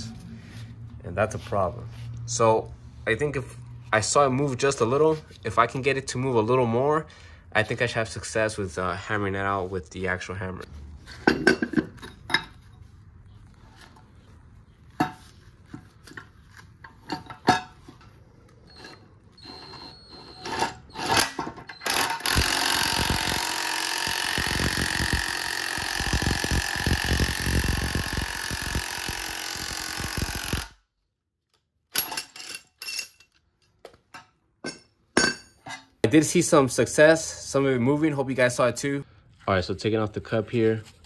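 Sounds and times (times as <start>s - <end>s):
impact wrench hammering: 21.8s - 30.7s.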